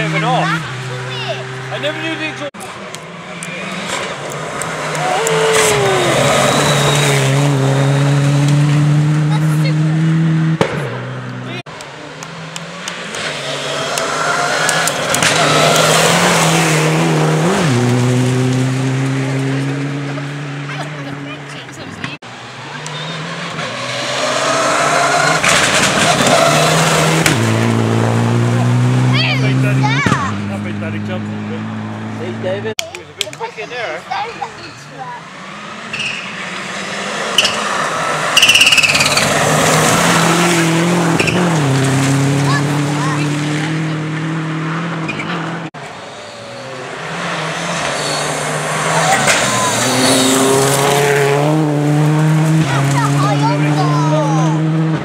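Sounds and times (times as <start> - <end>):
rally car engine at full throttle: 0.0 - 55.0
rally car engine running hard: 46.6 - 55.0.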